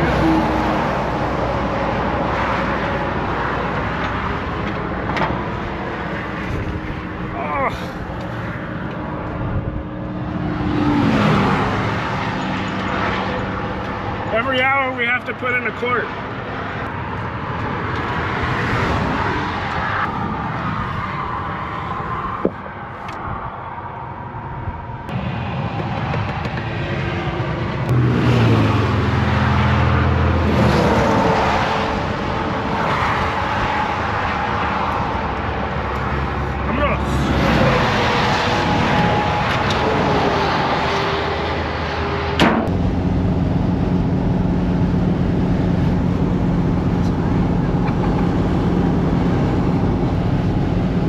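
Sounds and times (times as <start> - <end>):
highway traffic rushing past: 0.0 - 51.0
vehicle passing by: 7.6 - 14.5, 25.0 - 51.0.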